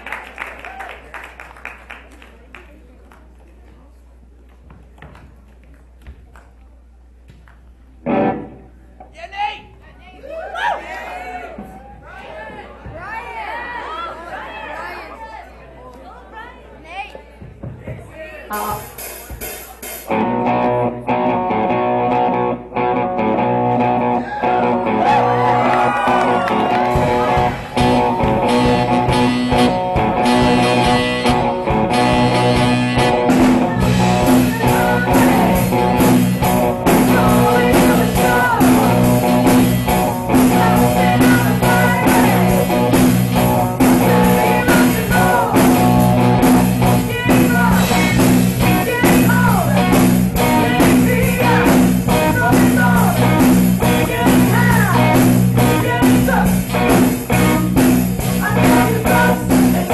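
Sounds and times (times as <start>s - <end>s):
drums: 17.3s - 59.9s
electric guitars: 20.1s - 59.9s
person singing: 33.4s - 39.4s, 40.3s - 43.0s, 43.6s - 46.0s, 47.0s - 56.8s, 58.3s - 59.9s.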